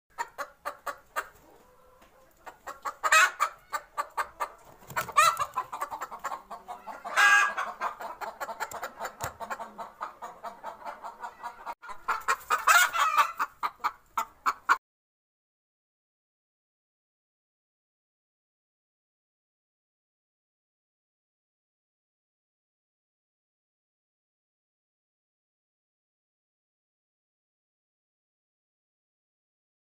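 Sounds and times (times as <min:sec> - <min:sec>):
chicken clucking: 0:00.1 - 0:14.8.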